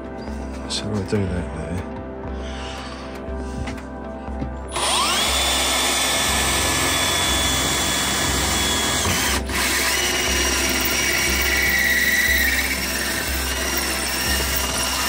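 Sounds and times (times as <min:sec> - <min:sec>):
cordless drill motor whine: 0:04.7 - 0:15.0
hole saw cutting metal: 0:04.7 - 0:15.0.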